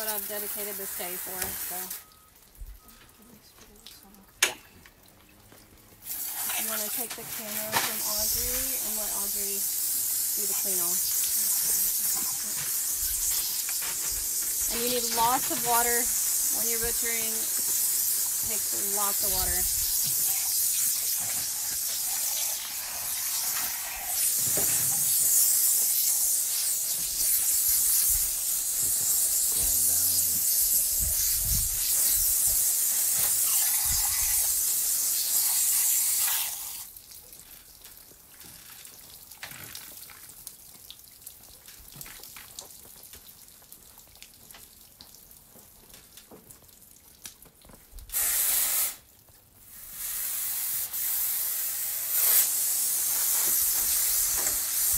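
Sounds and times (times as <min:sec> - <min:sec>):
water spraying from hose nozzle: 0:00.0 - 0:02.5, 0:06.0 - 0:40.6, 0:48.1 - 0:54.9.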